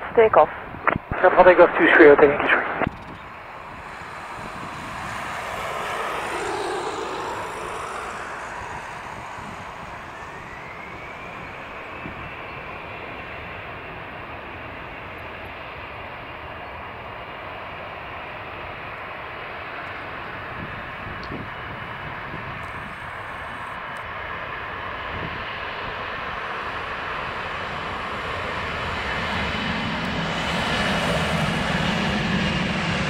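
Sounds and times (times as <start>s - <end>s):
jet rush: 0.0s - 14.7s
jet engines running: 0.0s - 33.0s
fan whine rising in pitch: 2.8s - 15.0s.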